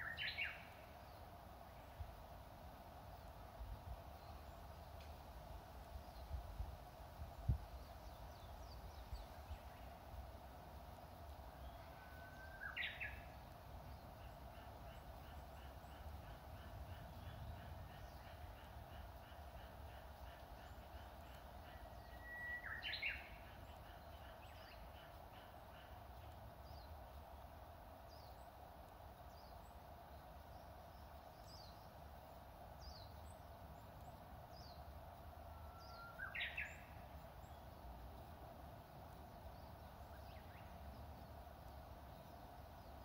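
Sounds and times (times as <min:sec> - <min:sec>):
bush warbler singing: 0:00.0 - 0:01.3, 0:07.3 - 0:27.4, 0:28.0 - 0:43.0.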